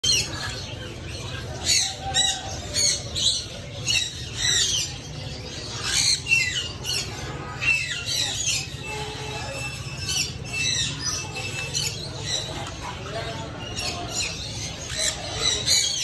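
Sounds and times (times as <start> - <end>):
parrots squawking: 0.0 - 16.0.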